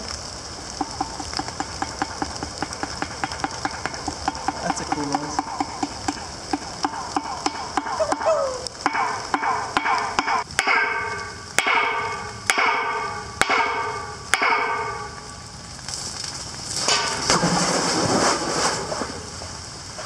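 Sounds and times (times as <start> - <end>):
sharp hits with ringing echo: 8.8 - 15.3.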